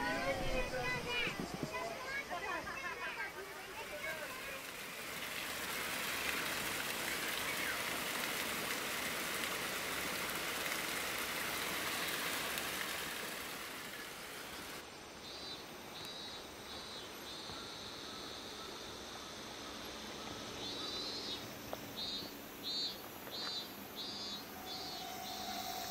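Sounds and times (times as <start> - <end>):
flowing river water: 0.0 - 14.9
faint high pulsing call: 24.2 - 25.9.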